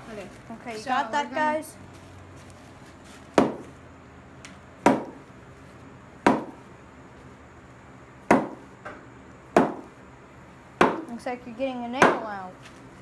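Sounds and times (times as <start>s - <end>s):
mallet knocking on wooden mold: 4.8s - 5.2s, 6.2s - 6.6s, 8.3s - 8.6s, 9.6s - 9.9s, 10.8s - 11.1s.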